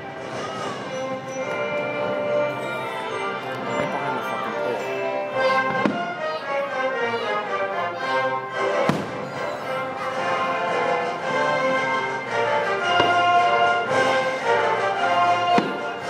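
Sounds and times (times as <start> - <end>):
orchestra playing: 0.0 - 16.0
firework bangs: 8.8 - 9.6, 15.6 - 15.9.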